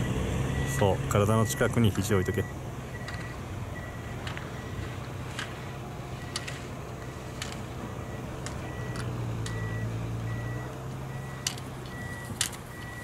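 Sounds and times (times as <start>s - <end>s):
faint pulsing high beep: 0.0s - 4.8s, 7.9s - 13.0s
slalom poles clicking: 4.2s - 9.7s.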